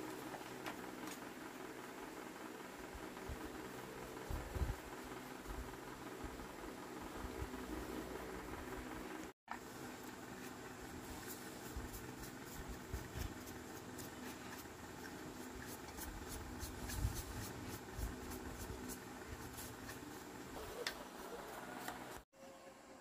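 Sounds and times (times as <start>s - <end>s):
brush scrubbing metal: 9.8s - 22.2s.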